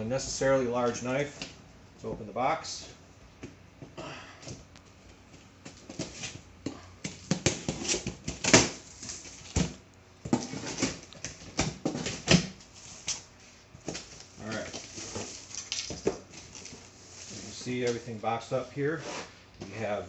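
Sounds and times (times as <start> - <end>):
packing material rustling: 13.9 - 18.0.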